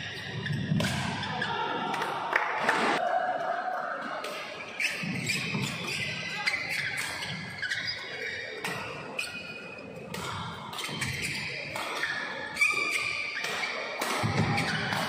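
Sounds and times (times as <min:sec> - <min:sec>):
shoes squeaking on court: 0:00.0 - 0:01.5, 0:04.3 - 0:15.0
racket striking shuttlecock: 0:10.1 - 0:15.0.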